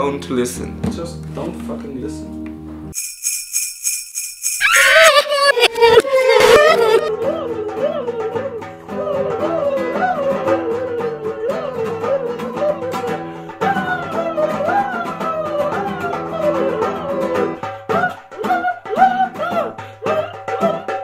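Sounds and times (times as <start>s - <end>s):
plucked guitar: 5.6s - 21.0s.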